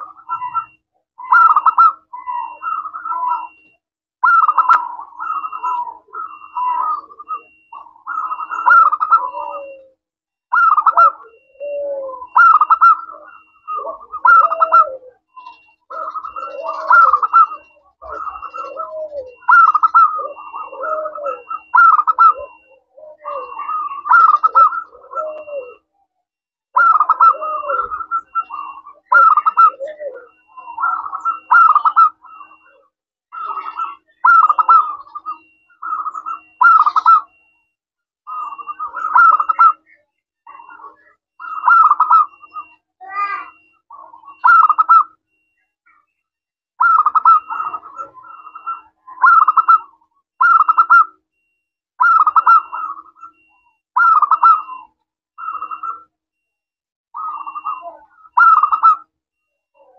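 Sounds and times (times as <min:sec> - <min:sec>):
dove cooing: 0:00.0 - 0:37.7, 0:38.3 - 0:46.1, 0:46.8 - 0:56.5, 0:57.2 - 0:59.9.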